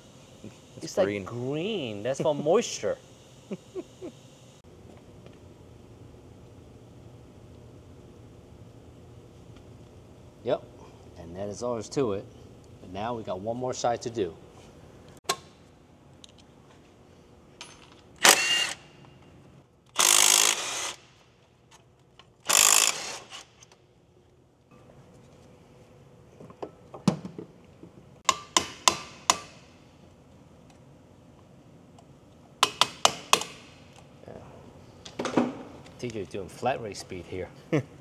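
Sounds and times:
power tool bursts: 0:18.2 - 0:18.9, 0:20.0 - 0:21.1, 0:22.4 - 0:23.5.

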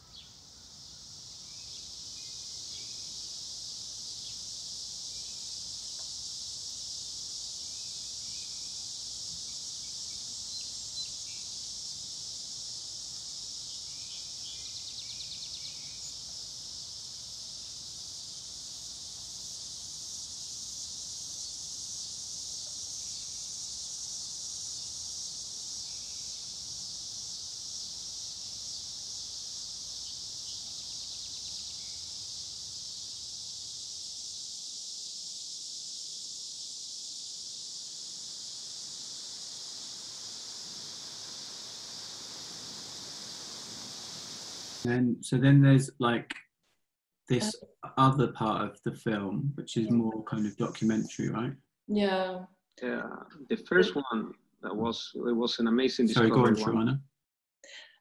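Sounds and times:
night insects chorus: 0:00.0 - 0:44.9
rapid insect trill: 0:00.0 - 0:44.9.

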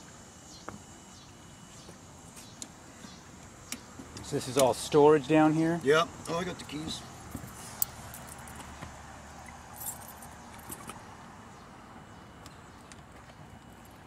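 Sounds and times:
keys jingling: 0:09.8 - 0:10.9.

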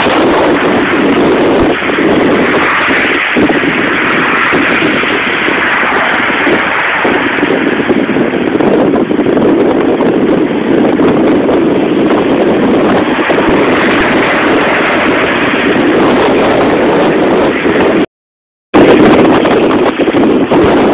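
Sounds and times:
wind buffeting microphone: 0:00.0 - 0:18.1, 0:18.8 - 0:20.9.

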